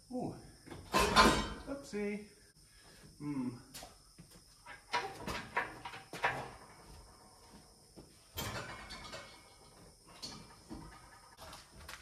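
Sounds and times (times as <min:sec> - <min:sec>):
metal clunks and knocks: 0:00.7 - 0:01.7, 0:04.6 - 0:07.0, 0:08.3 - 0:11.0.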